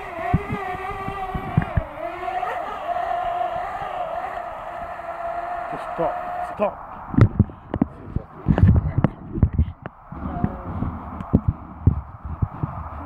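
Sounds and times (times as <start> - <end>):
low thumps: 0.0 - 2.4, 6.3 - 13.0
drone propellers humming: 0.0 - 13.0.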